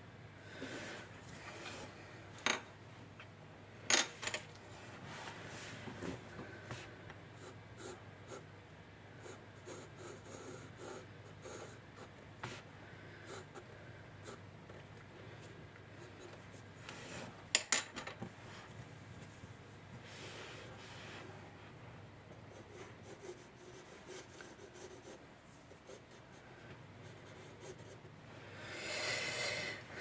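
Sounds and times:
pencil scratching on paper: 9.2s - 12.6s, 22.4s - 26.4s, 27.0s - 28.0s.

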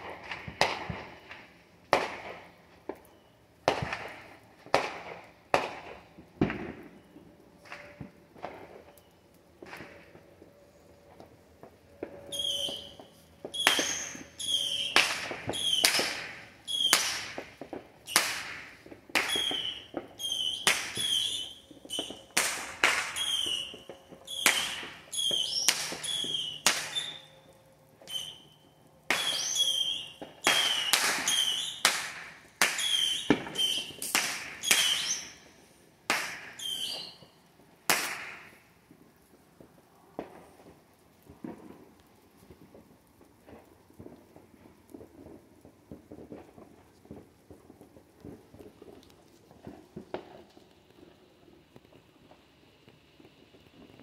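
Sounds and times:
firework whistles: 0.0s - 38.6s
fireworks popping: 0.0s - 54.0s.

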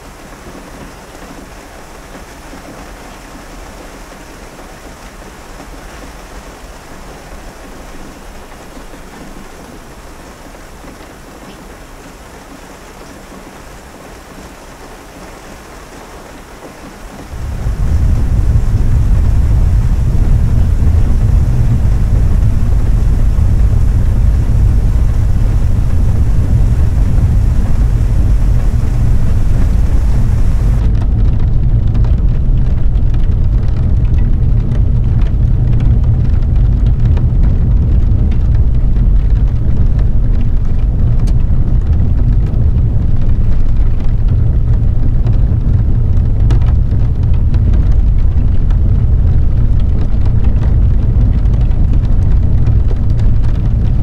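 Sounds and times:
heavy rain on a car: 0.0s - 54.0s
raindrops ticking: 16.5s - 54.0s
deep rumble: 17.3s - 54.0s.

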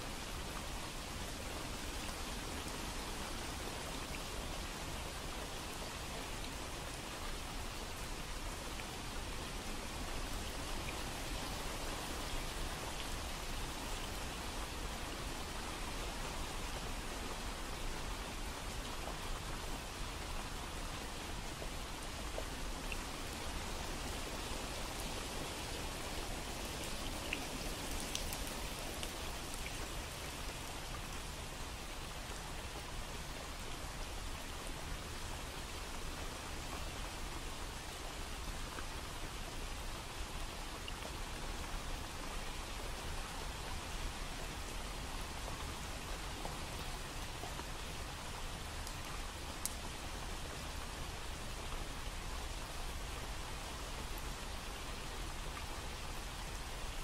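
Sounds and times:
steady rain hissing: 0.0s - 57.0s
raindrop ticks: 26.8s - 29.9s.

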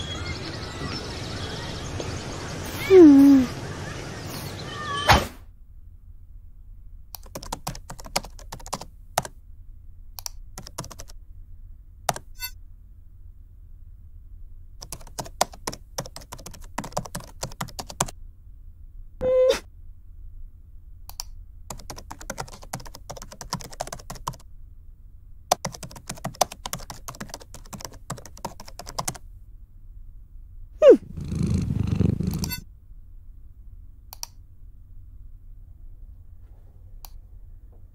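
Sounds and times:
keyboard typing: 7.2s - 9.4s, 10.2s - 11.2s, 12.1s - 12.5s, 14.8s - 18.1s, 21.1s - 24.4s, 25.5s - 29.2s, 31.2s - 32.6s
tone sliding down in pitch: 19.2s - 19.6s
brief pitched tone: 19.2s - 19.7s.

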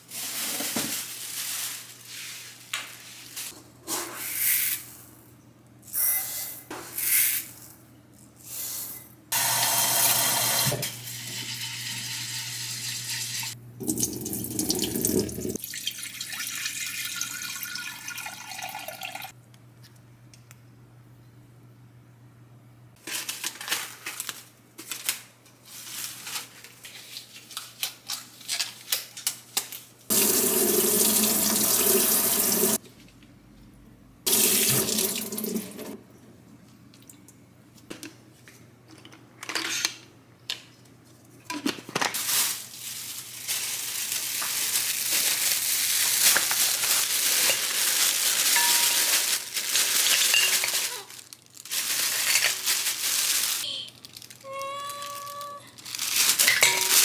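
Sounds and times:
plastic packaging rustling: 0.0s - 3.6s, 23.0s - 29.9s, 41.8s - 57.0s.

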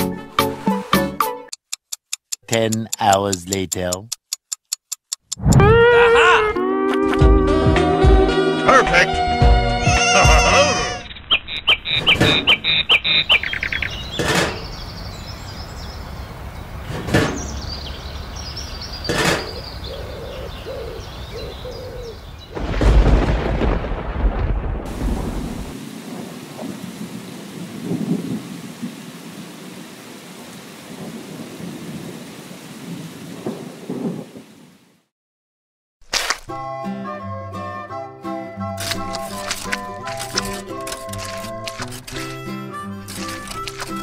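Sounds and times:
thunder cracks and rumble: 22.5s - 29.0s, 32.9s - 34.4s
steady rain: 22.5s - 35.1s.

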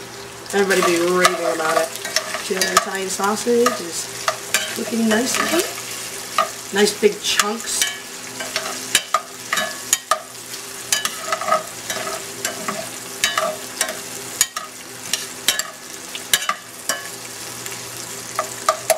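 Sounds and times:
sausage sizzling: 0.0s - 18.9s
metal spoon clinking on pan: 3.6s - 5.7s, 7.4s - 10.3s, 10.9s - 17.2s.

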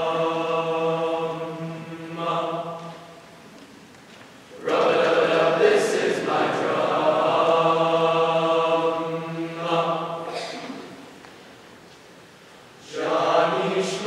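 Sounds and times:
men's choir singing: 0.0s - 3.2s, 4.6s - 10.5s, 12.8s - 14.0s.

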